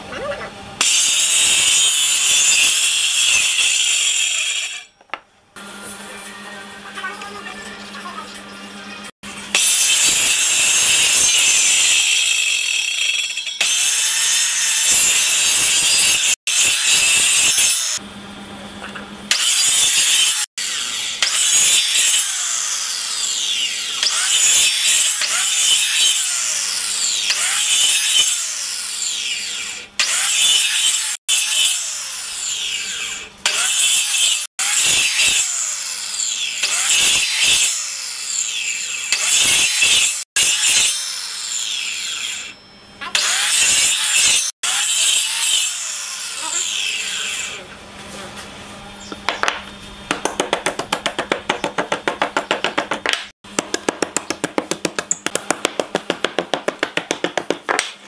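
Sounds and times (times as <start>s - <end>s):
circular saw cutting wood: 0.8s - 5.0s, 9.2s - 18.1s, 19.3s - 47.8s.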